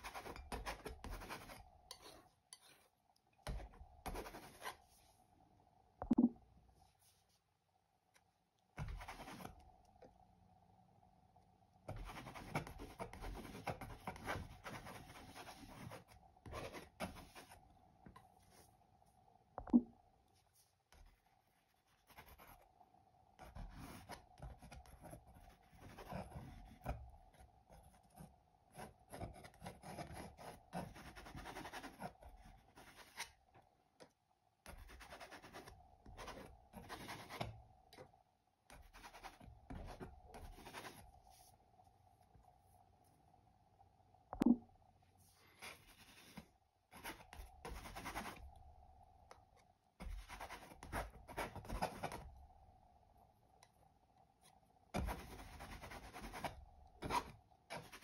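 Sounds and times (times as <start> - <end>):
palette knife scraping paint: 0.0 - 4.9, 11.9 - 17.6, 23.4 - 33.4, 38.7 - 41.4, 54.9 - 58.0
faint steady hum: 0.0 - 58.0.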